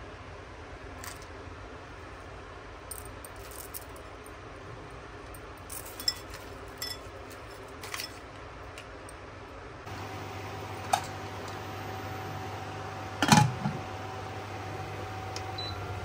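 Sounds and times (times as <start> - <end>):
steady background noise: 0.0 - 11.8
clinks against glass bowl: 6.0 - 7.1.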